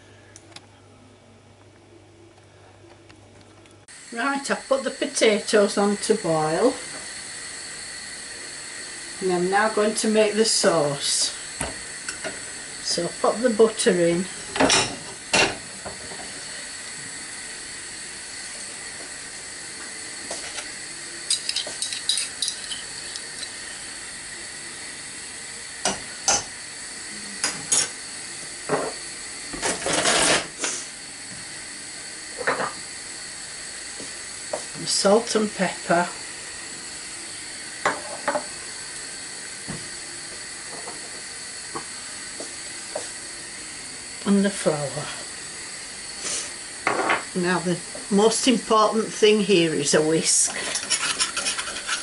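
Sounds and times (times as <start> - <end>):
butter hissing in saucepan: 3.9 - 52.0
butter crackling in a saucepan: 20.3 - 24.0, 49.7 - 52.0
dish scraping a saucepan: 21.3 - 23.8, 29.6 - 30.5, 50.3 - 52.0
steady hiss: 32.6 - 50.4.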